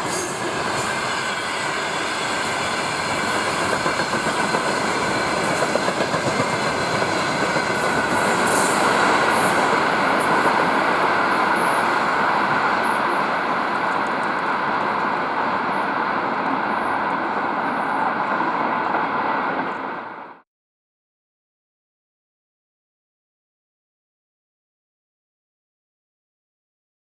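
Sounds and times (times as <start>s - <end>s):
train wheels rumbling on track: 0.0s - 20.4s.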